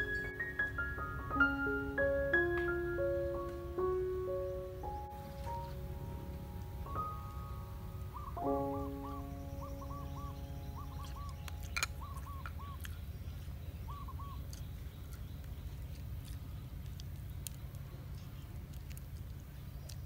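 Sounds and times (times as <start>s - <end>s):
steady low hum: 0.0s - 20.0s
bird hooting: 6.8s - 12.8s, 13.9s - 14.4s.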